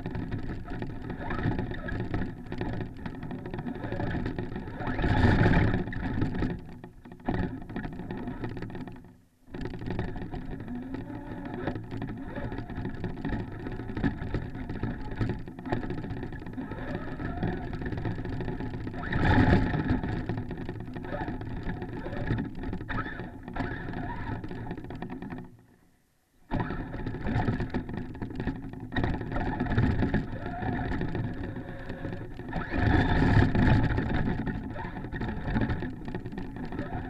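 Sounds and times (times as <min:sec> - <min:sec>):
toy truck motor whining: 0:15.8 - 0:24.6, 0:29.0 - 0:37.0.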